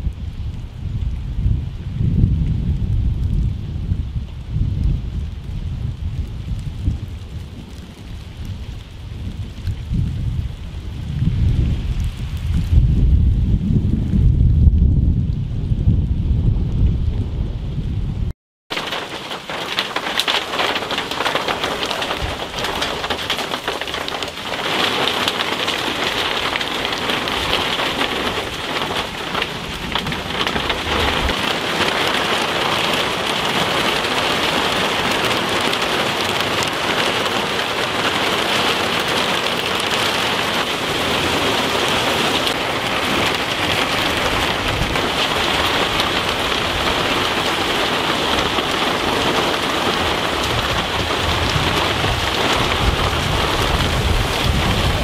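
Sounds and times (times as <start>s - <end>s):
heavy rain pouring: 0.0s - 55.0s
low thunder rumbles: 0.0s - 55.0s.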